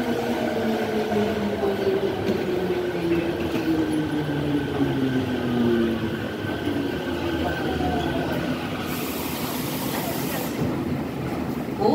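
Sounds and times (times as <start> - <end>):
train braking: 0.0 - 10.9
train running rumble: 0.0 - 11.9.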